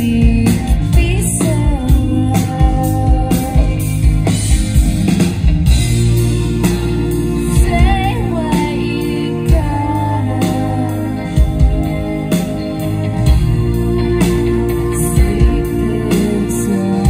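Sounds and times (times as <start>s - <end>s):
woman singing: 0.0s - 4.3s, 7.4s - 11.9s, 14.7s - 17.0s
drums: 0.0s - 17.0s
electric guitar: 0.0s - 17.0s.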